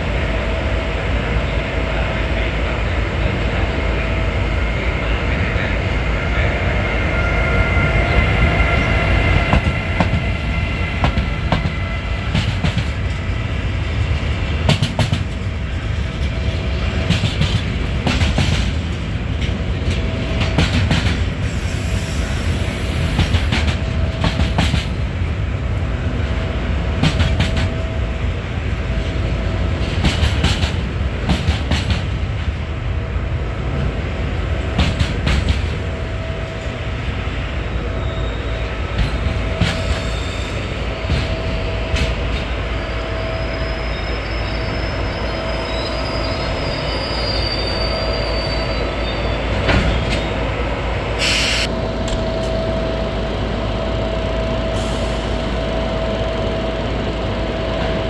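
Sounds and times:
freight train rumbling: 0.0 - 58.0
train wheels clacking on track: 5.9 - 25.2, 26.9 - 32.6, 33.8 - 36.7, 38.8 - 47.7.

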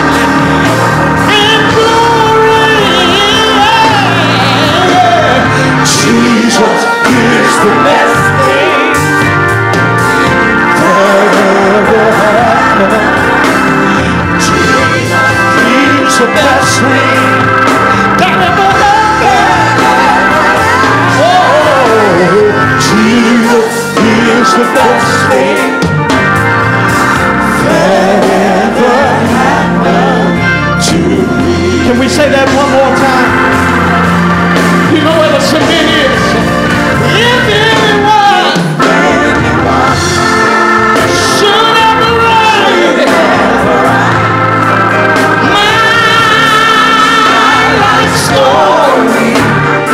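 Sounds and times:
man singing gospel: 0.0 - 26.4, 27.4 - 49.9
organ chords: 0.0 - 49.9.

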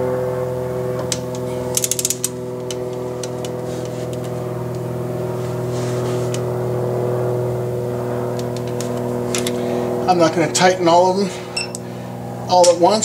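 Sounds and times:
steady mechanical hum: 0.0 - 13.0
ratchet wrench clicking: 1.7 - 2.3.

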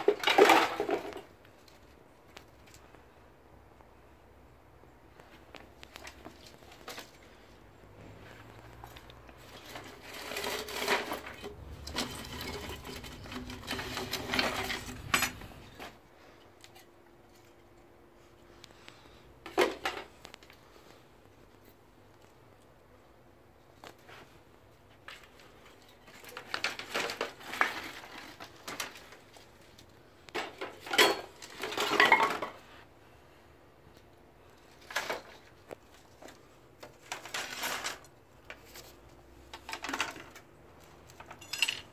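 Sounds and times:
sticks and rods clattering in crate: 0.0 - 1.8, 8.2 - 16.0, 19.4 - 20.3, 25.0 - 32.7, 34.6 - 41.9.

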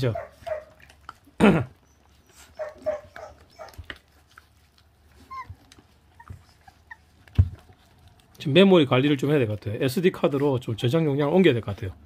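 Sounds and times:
puppies whimpering and yipping: 0.0 - 8.4
puppy whining: 0.0 - 8.4
chewing clicks: 0.3 - 9.6.

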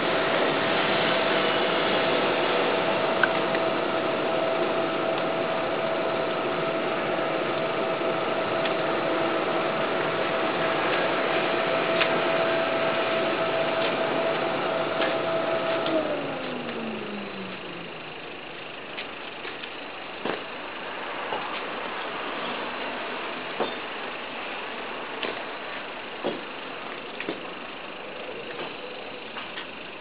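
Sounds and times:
electric air blower running: 0.0 - 22.4.

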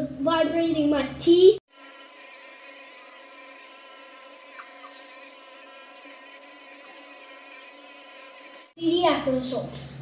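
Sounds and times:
electric toothbrush buzzing: 1.7 - 8.8.

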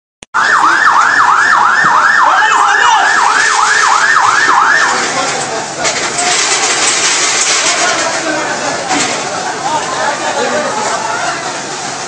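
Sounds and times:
siren yelping: 0.4 - 5.0
street noise hiss: 2.5 - 12.0.

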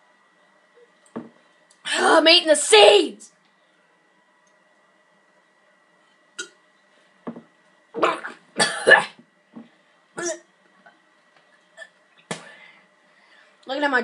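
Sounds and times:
boy coughing and gagging: 8.0 - 9.2, 10.2 - 10.5.

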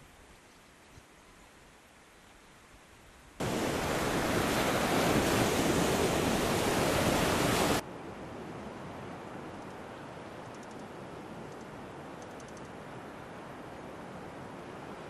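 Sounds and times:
faint outdoor hiss: 0.0 - 15.0
waves washing onto shore: 3.4 - 10.2.

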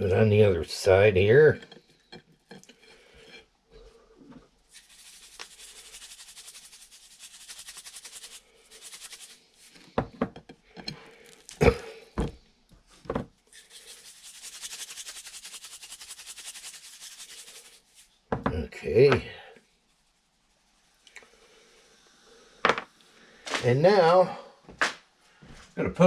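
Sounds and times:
rhythmic rasping hiss of salt: 4.7 - 9.9, 13.5 - 18.1, 18.8 - 23.4.

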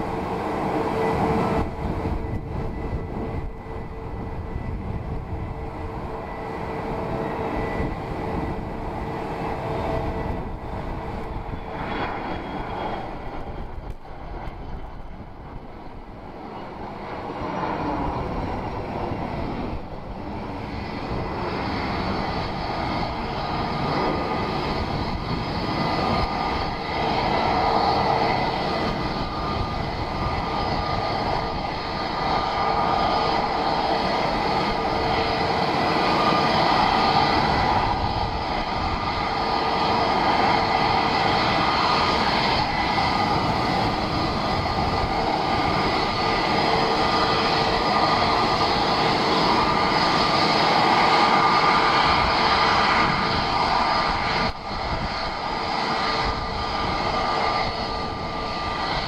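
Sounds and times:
jet engines running: 0.0 - 59.0.

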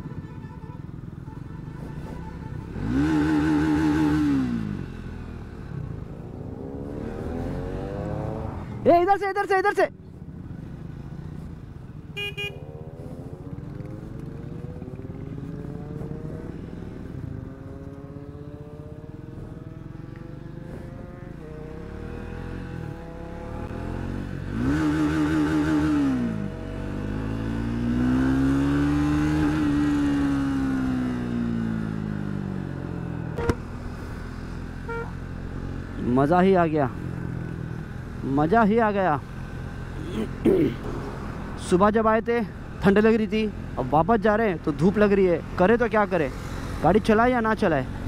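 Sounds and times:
horn toot: 0.0 - 3.5, 12.1 - 12.7, 33.4 - 33.7, 34.8 - 35.2
wind and road noise: 0.0 - 48.0
motorcycle engine accelerating: 1.8 - 9.0, 10.2 - 42.0.

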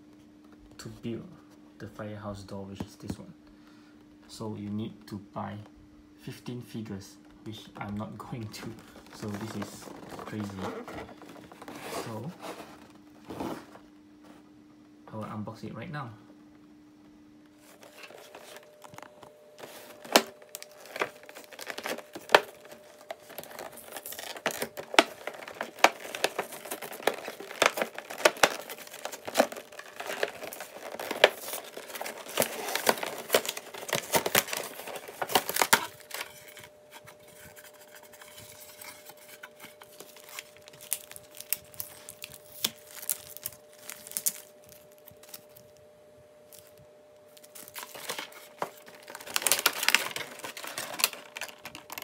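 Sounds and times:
plastic packaging crinkling: 8.0 - 13.8, 17.6 - 45.9, 46.5 - 52.0.

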